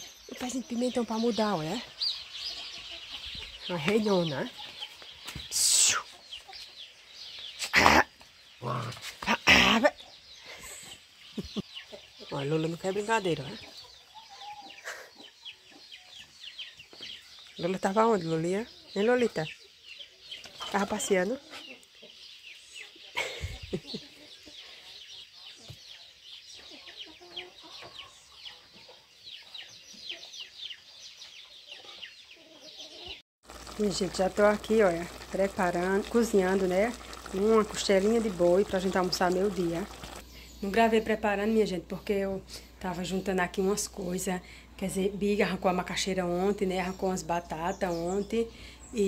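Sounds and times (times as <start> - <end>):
chicks peeping: 0.0 - 8.7, 9.6 - 33.7
faint bird chirping: 0.0 - 49.0
hens clucking: 31.5 - 40.3.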